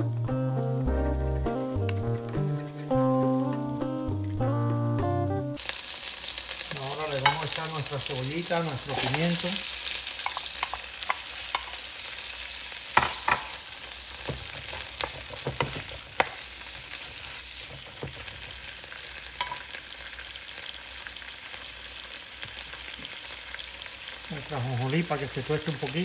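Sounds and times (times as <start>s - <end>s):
vegetables sizzling in oil: 0.0s - 26.0s
wooden stick knocking on pan: 7.2s - 7.6s, 13.0s - 13.5s.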